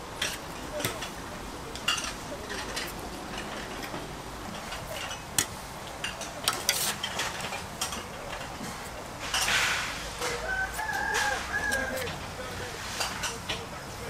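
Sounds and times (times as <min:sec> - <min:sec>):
metal utensils clinking on cookware: 0:00.2 - 0:10.4.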